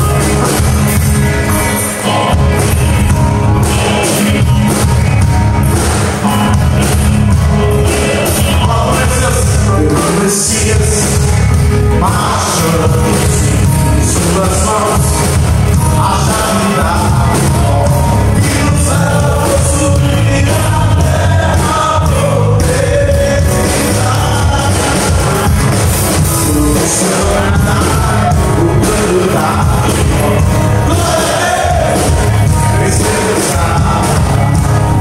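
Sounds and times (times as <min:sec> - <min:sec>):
live gospel band playing: 0:00.0 - 0:35.0
person singing: 0:07.4 - 0:35.0.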